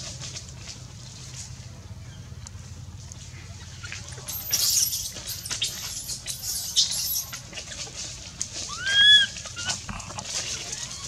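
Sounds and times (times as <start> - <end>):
very high thin squeaks: 4.3 - 7.4
monkey rising coo: 8.7 - 11.0.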